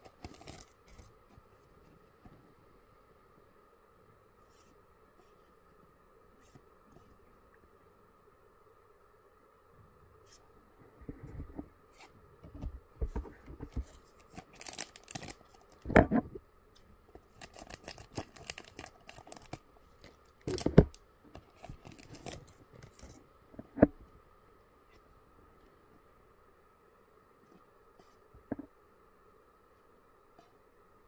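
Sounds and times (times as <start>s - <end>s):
scissors cutting wrapper: 0.0s - 1.1s, 14.2s - 15.8s, 17.3s - 23.2s
wrapper crinkling: 0.0s - 1.1s, 13.9s - 15.9s, 17.2s - 23.2s.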